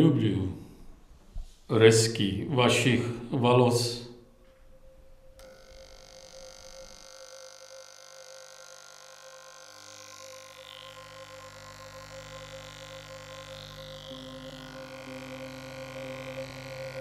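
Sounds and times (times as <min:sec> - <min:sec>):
electric hair clippers buzzing: 0:05.4 - 0:17.0.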